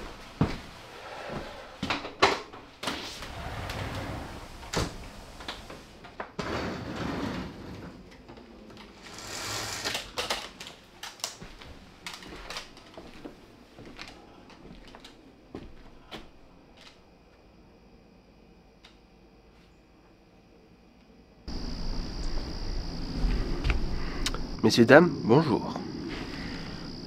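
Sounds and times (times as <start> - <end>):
footsteps indoors: 0.0 - 6.4, 10.4 - 17.5, 21.5 - 24.5
glass sliding door rolling: 2.9 - 8.2, 8.9 - 10.3.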